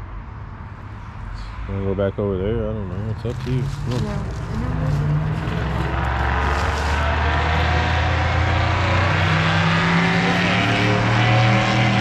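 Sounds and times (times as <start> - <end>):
truck passing: 0.9 - 12.0.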